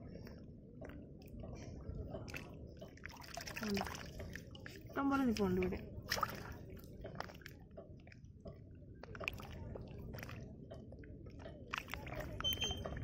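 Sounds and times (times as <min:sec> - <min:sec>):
mussel shells clicking and crunching: 0:11.4 - 0:12.8.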